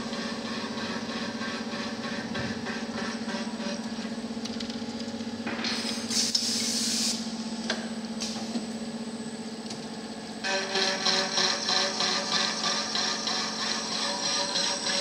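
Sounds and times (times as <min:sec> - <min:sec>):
milling machine motor hum: 0:09.3 - 0:15.0.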